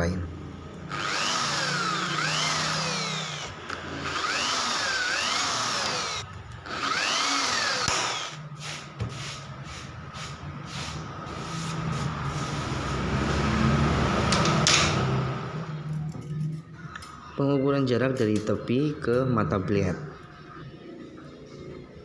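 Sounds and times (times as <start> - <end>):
electric drill boring through metal: 0.9 - 8.4.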